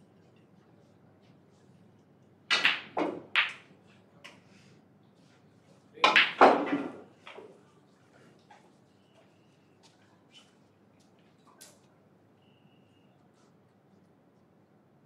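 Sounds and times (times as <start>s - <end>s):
snooker balls clicking together: 2.5s - 3.7s, 6.0s - 7.4s.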